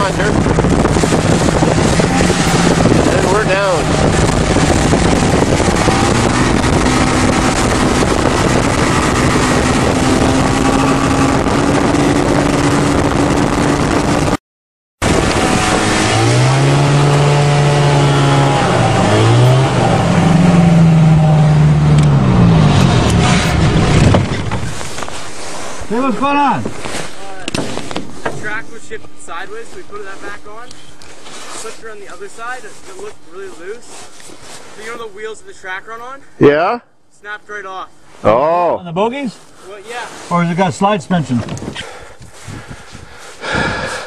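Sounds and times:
airplane engine and propeller: 0.0 - 14.4, 15.0 - 25.3
heavy wind: 0.0 - 14.4, 15.0 - 36.6, 39.2 - 44.0.

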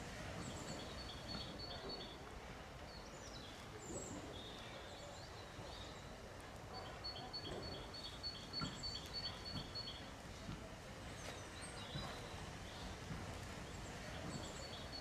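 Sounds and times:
birds singing: 6.8 - 10.1, 13.7 - 15.0.

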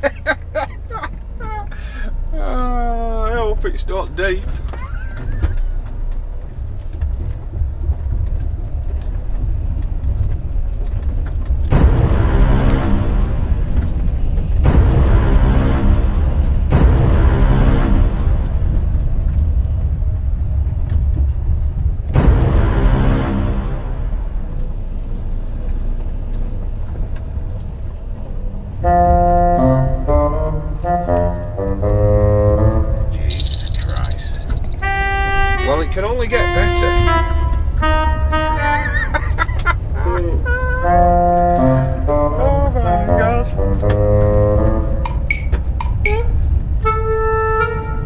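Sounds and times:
lorry diesel engine rumble: 0.0 - 48.0
faint background music: 27.4 - 38.9, 39.9 - 48.0
organ-like keyboard music: 28.7 - 46.2.

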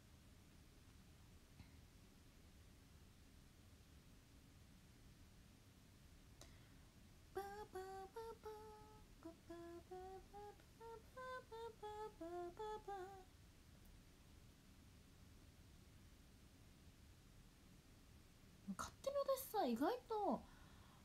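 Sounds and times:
woman humming a tune: 7.4 - 13.3.

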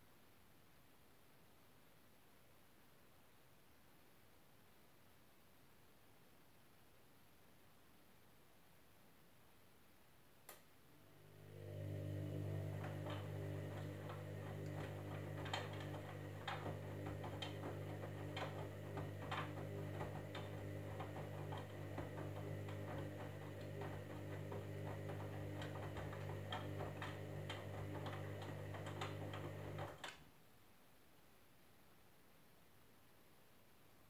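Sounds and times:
washing machine motor humming: 10.9 - 30.1.

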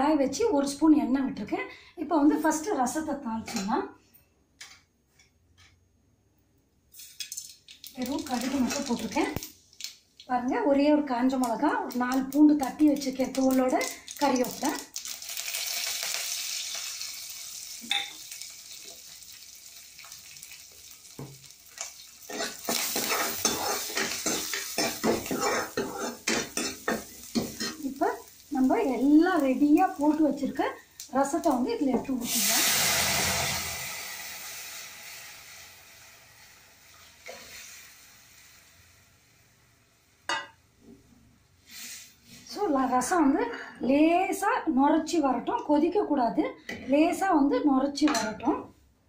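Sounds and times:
spices sizzling in hot oil: 6.9 - 40.7, 41.6 - 43.1
ladle scraping a pan: 22.3 - 27.8.

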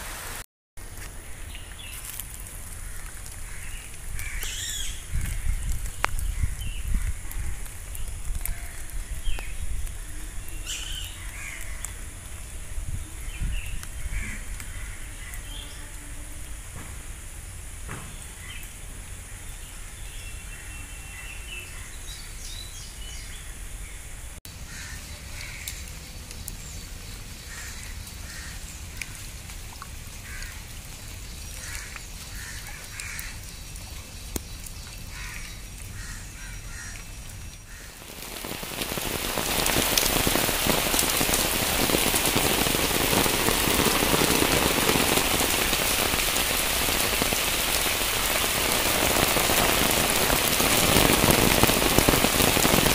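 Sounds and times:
rain falling: 0.0 - 52.9
birds calling: 2.8 - 12.6.

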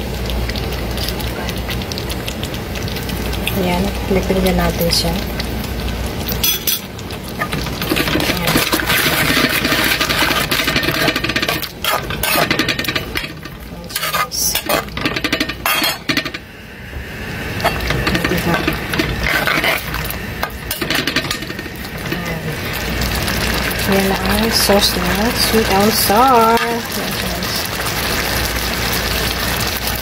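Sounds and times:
metal spoon scraping a pan: 6.4 - 16.4, 17.6 - 21.7.

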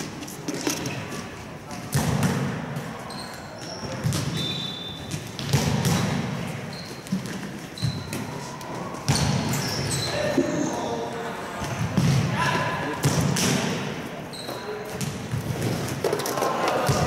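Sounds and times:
ball kicks and thuds echoing: 1.8 - 2.7, 3.9 - 4.5, 5.1 - 6.4, 9.1 - 9.6, 11.6 - 12.4, 13.0 - 13.9, 14.9 - 16.0.

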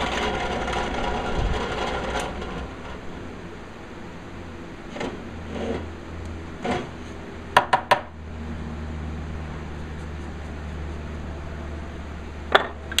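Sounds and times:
drill press cutting wood: 0.0 - 3.0
low steady hum: 0.0 - 13.0
sharp knocks: 7.6 - 8.1
wood-on-wood knocks: 7.6 - 8.1.

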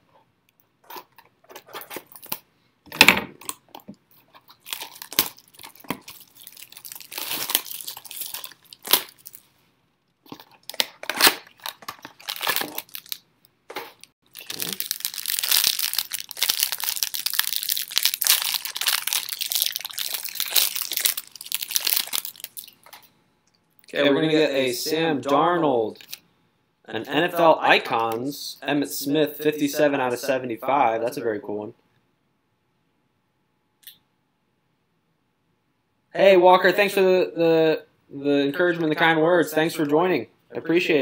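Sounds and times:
plastic wrapping crinkling and tearing: 1.5 - 2.4, 4.3 - 9.5, 10.2 - 23.1, 25.9 - 26.2.

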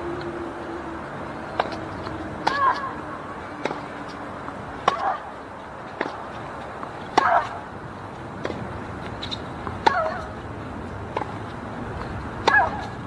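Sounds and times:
racket hitting tennis ball: 1.6 - 3.0, 3.6 - 3.9, 4.8 - 5.3, 5.9 - 7.7, 8.4 - 10.4, 11.1 - 13.0.

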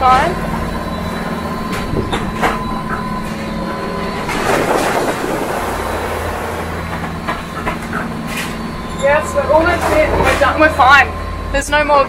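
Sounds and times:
boat engine droning: 0.0 - 12.0
rushing water in breaking waves: 3.9 - 8.2.

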